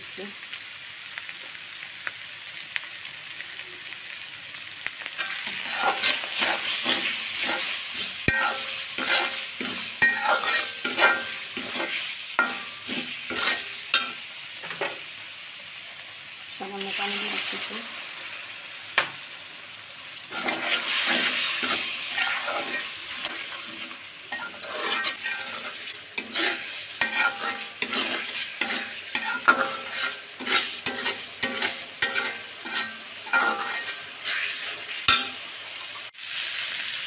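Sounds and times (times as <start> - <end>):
paste sizzling and spattering: 5.0 - 14.2, 20.2 - 35.4
metal spatula scraping pan: 5.2 - 15.0, 20.3 - 35.4.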